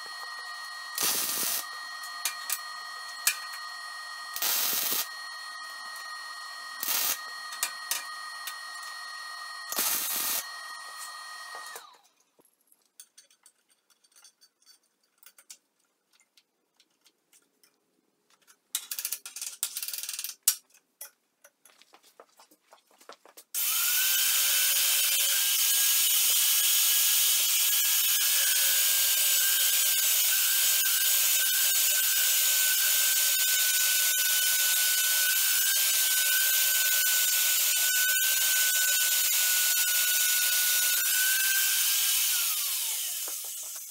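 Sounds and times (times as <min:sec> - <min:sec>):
drill press motor whining: 0:00.0 - 0:12.1, 0:23.6 - 0:43.9.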